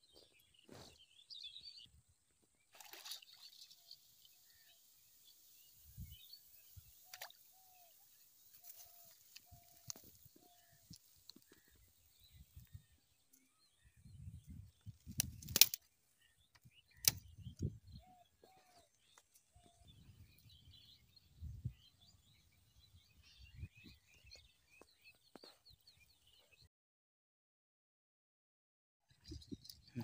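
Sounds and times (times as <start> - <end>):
birds chirping: 2.6 - 26.7, 29.1 - 30.0
sharp clicks: 15.1 - 15.8, 16.6 - 17.2.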